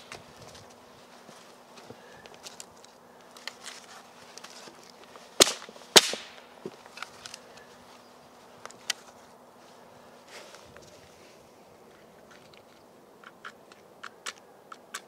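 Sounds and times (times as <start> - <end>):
sticks rustling and knocking: 0.0 - 8.0
dry wood snapping: 2.2 - 7.6.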